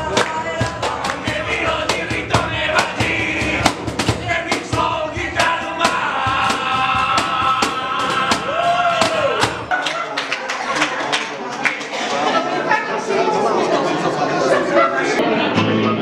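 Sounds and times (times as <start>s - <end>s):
person singing: 0.0s - 9.6s
strummed acoustic guitar: 0.0s - 9.7s.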